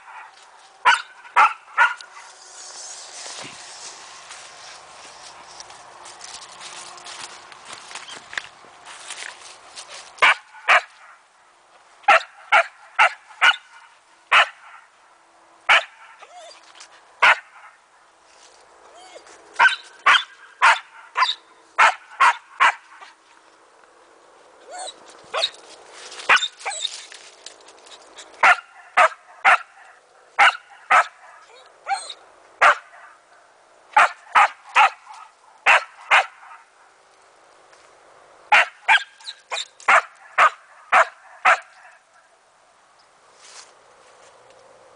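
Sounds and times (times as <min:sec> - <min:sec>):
dog barking: 0:00.0 - 0:02.1, 0:10.2 - 0:10.9, 0:12.1 - 0:14.8, 0:15.7 - 0:16.1, 0:17.2 - 0:17.7, 0:19.6 - 0:23.1, 0:28.4 - 0:33.2, 0:34.0 - 0:36.6, 0:38.5 - 0:42.0.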